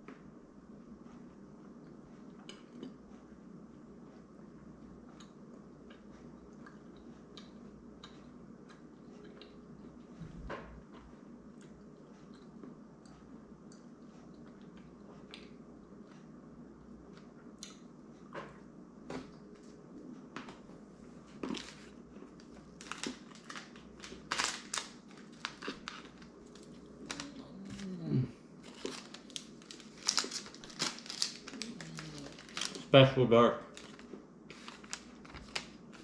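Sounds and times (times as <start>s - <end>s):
quiet chewing: 1.0s - 32.9s
chocolate wrapper crinkling: 21.5s - 27.8s, 28.6s - 33.1s, 33.7s - 36.0s.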